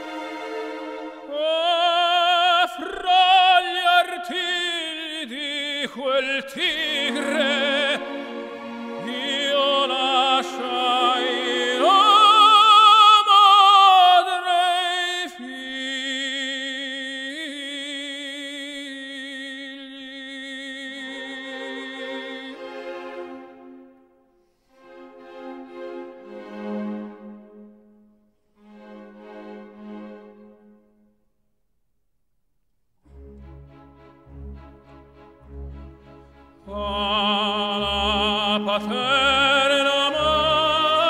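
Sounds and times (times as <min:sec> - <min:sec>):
orchestral accompaniment: 0:00.0 - 0:02.6, 0:06.6 - 0:13.1, 0:21.0 - 0:24.1, 0:24.8 - 0:30.9, 0:33.1 - 0:41.0
operatic singing: 0:00.0 - 0:23.9, 0:33.1 - 0:41.0.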